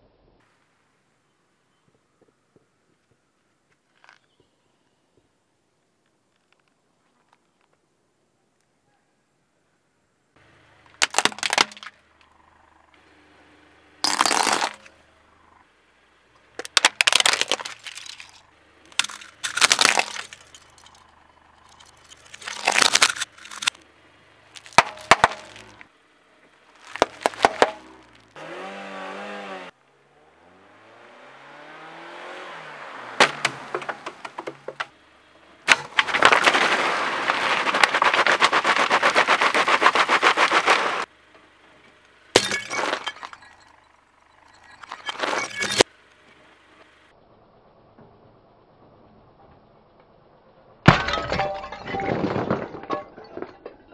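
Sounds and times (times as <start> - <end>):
tyre crushing objects: 10.9 - 12.0, 14.0 - 14.9, 16.6 - 23.8, 24.5 - 25.9, 26.7 - 29.7, 33.1 - 35.0, 35.6 - 41.1, 42.4 - 43.6, 44.5 - 45.9
plastic bottle crackling: 16.6 - 21.0, 21.6 - 23.8, 26.8 - 28.4, 35.7 - 41.1
tyre squeal: 44.4 - 45.9.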